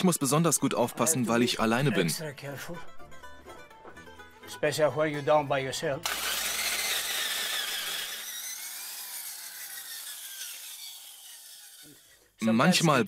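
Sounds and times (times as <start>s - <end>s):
power drill drilling into rock: 6.0s - 12.1s.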